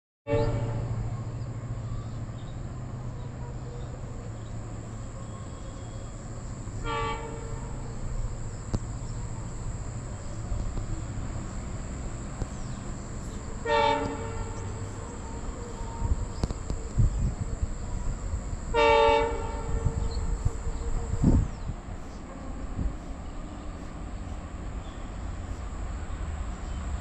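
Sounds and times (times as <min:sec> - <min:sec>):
train horn blasts: 0:00.3 - 0:01.8, 0:05.1 - 0:23.1
high-pitched insect drone: 0:00.9 - 0:26.8.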